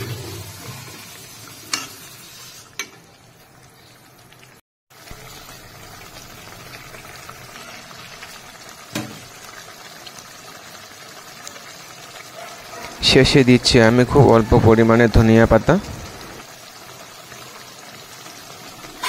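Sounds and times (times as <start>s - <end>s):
gravy bubbling and hissing: 0.0s - 2.8s.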